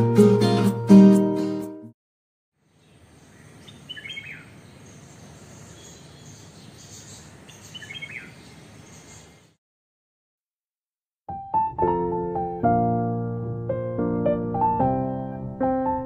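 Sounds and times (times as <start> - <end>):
outdoor background noise: 2.6 - 9.6
bird call: 2.8 - 9.5.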